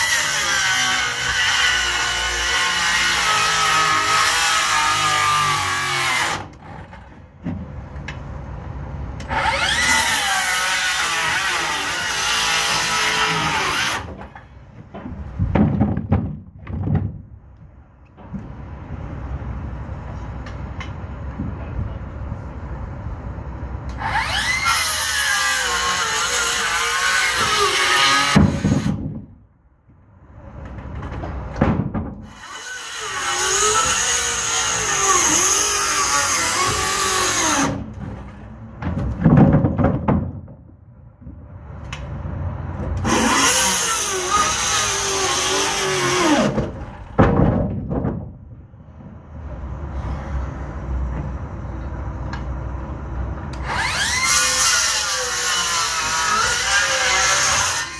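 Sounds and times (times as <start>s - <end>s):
wood knocks: 14.2s - 17.3s, 38.8s - 41.4s.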